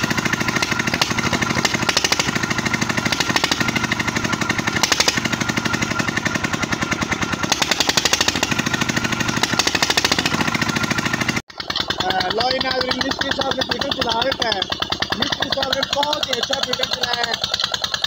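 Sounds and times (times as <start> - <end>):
diesel engine knocking: 0.0 - 18.0.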